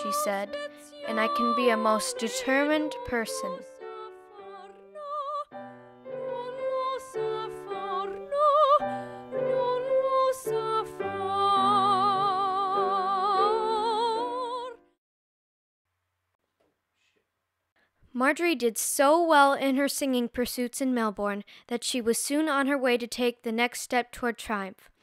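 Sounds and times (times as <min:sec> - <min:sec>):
woman singing operatically: 0:00.0 - 0:05.5, 0:06.2 - 0:14.8.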